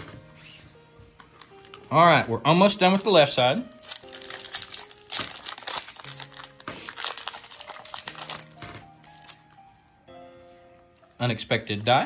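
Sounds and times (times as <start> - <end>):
background music: 0.0 - 12.0
foil wrapper crinkling: 1.2 - 9.6.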